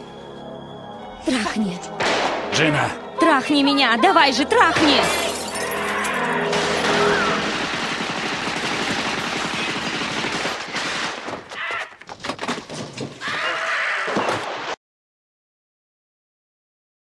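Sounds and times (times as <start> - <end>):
single gunshots: 2.0 - 2.6
rapid gunfire: 6.5 - 11.5.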